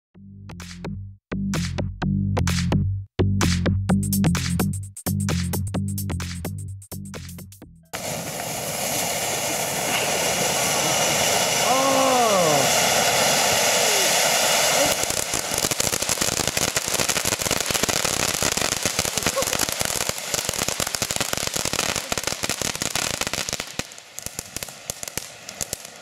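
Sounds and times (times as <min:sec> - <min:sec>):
dense fireworks crackling: 0:07.9 - 0:26.0
fireworks fountains hissing: 0:07.9 - 0:26.0.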